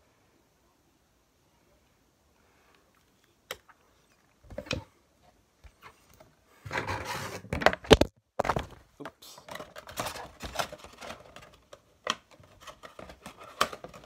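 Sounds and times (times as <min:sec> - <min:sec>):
packaging crinkling rustle: 0:09.5 - 0:14.0.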